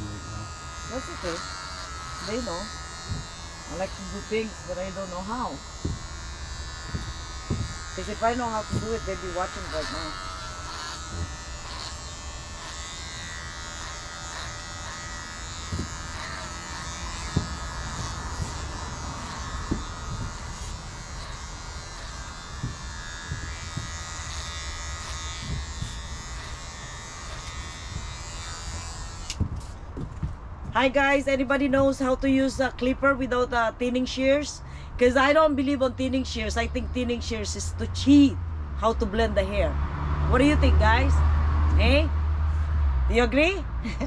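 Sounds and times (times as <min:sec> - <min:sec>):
electric hair clippers buzzing: 0:00.0 - 0:30.3, 0:40.3 - 0:42.1.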